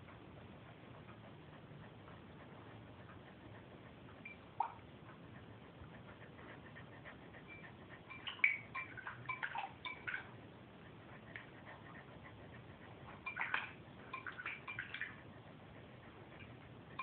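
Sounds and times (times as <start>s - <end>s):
dog splashing in water bowl: 8.1s - 10.3s, 13.2s - 15.2s.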